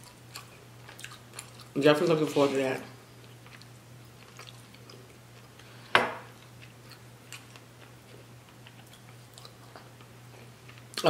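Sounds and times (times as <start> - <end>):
faint chewing: 0.0 - 1.8, 3.2 - 5.7, 6.3 - 11.0.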